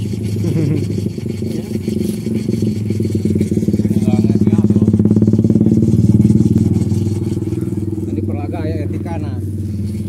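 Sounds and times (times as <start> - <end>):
small engine running: 0.0 - 10.0.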